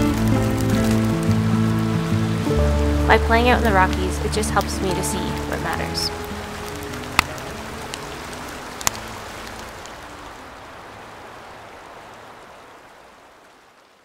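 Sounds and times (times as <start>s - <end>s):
campfire crackling: 0.0s - 14.0s.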